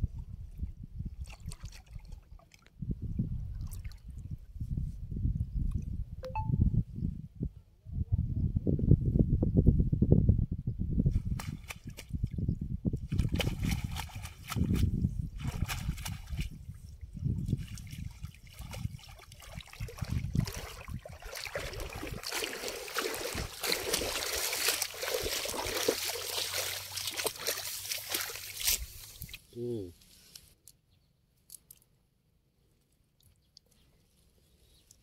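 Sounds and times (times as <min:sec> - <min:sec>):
water splashing and sloshing: 0:01.2 - 0:04.2, 0:13.1 - 0:29.5
water trickling: 0:18.0 - 0:29.4.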